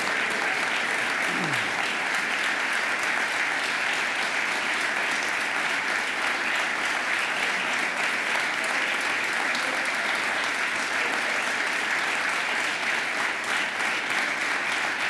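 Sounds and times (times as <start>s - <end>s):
crowd applauding: 0.0s - 15.0s.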